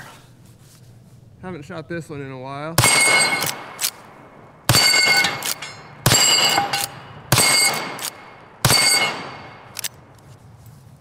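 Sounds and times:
steel plates ringing when hit: 0:02.8 - 0:03.7, 0:04.7 - 0:09.7
rifle shots: 0:02.8 - 0:10.0.

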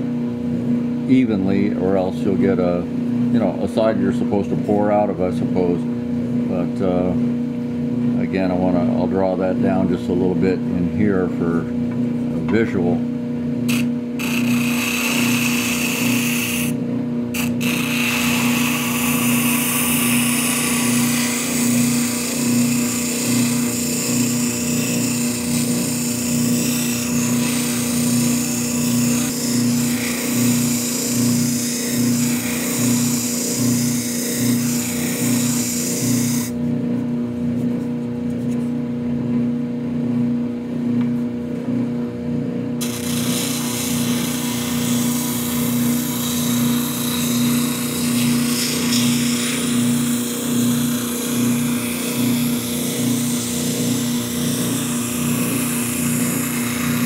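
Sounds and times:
drum sander motor humming: 0:00.0 - 0:57.0
hissing rasp of wood sanding: 0:13.7 - 0:16.7, 0:17.4 - 0:36.5, 0:42.8 - 0:57.0.

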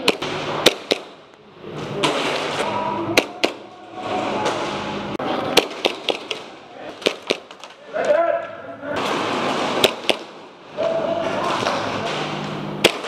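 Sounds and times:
airsoft gun shots: 0:00.0 - 0:01.3, 0:03.2 - 0:03.7, 0:05.5 - 0:07.7, 0:09.0 - 0:10.5, 0:12.8 - 0:13.0.

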